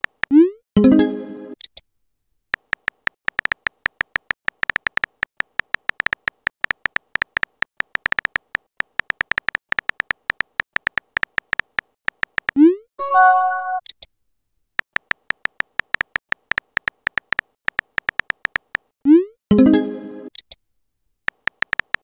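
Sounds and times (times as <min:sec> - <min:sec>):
keyboard tap clicks: 0:02.6 - 0:12.6, 0:14.8 - 0:18.9, 0:21.3 - 0:22.0.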